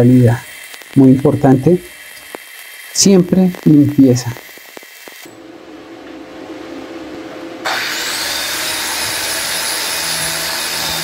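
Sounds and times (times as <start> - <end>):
angle grinder on steel: 0.0 - 5.3, 7.6 - 11.0.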